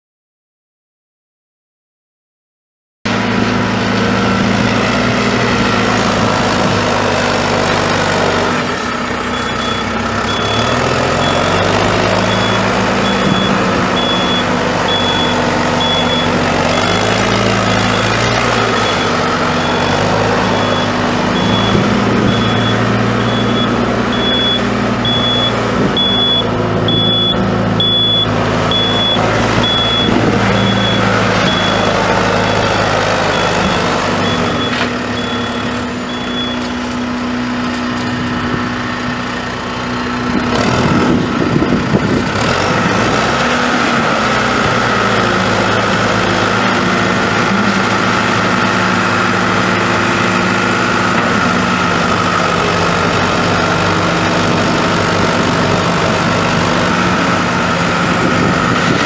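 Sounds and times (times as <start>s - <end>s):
diesel tractor engine revving: 3.1s - 59.0s
backup alarm beeping: 9.3s - 17.0s, 17.6s - 36.8s.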